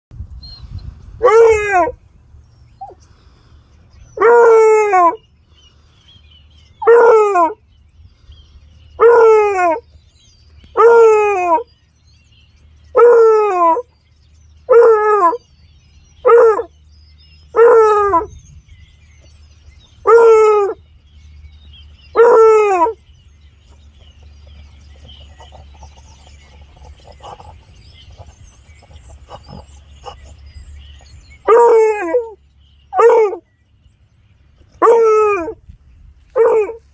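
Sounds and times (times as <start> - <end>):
hound baying: 1.2 - 2.0, 4.2 - 5.2, 6.8 - 7.6, 9.0 - 9.8, 10.7 - 11.7, 12.9 - 14.0, 14.6 - 15.4, 16.2 - 16.7, 17.4 - 18.4, 20.0 - 20.8, 22.1 - 23.0, 23.7 - 33.5, 34.8 - 35.6, 36.3 - 36.9
dog sniffing grass: 23.4 - 31.3.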